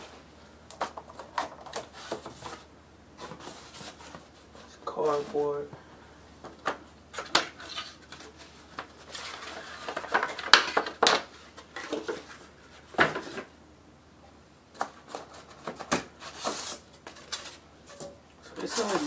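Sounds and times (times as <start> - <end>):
cardboard rustling and scraping: 0.8 - 5.6, 7.2 - 13.6, 14.8 - 18.0, 18.6 - 19.0.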